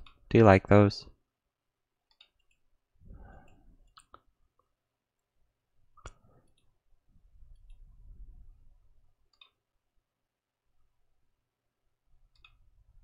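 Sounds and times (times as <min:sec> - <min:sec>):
faint computer mouse clicks: 0:09.3 - 0:09.6, 0:12.3 - 0:12.6.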